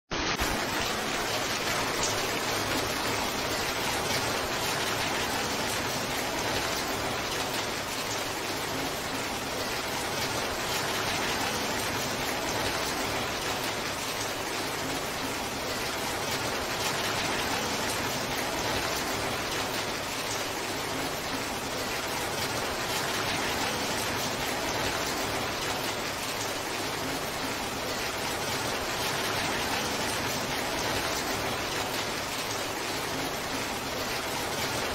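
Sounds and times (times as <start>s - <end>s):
heavy rain pouring: 0.1s - 34.9s.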